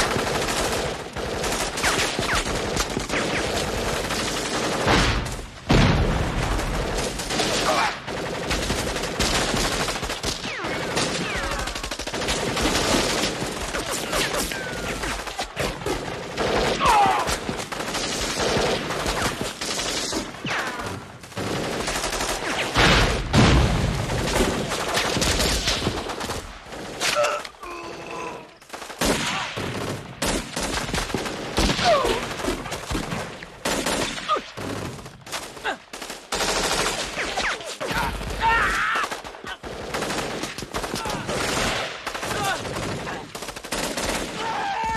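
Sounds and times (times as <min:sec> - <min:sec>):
automatic gunfire: 0:28.7 - 0:37.4, 0:39.0 - 0:44.6.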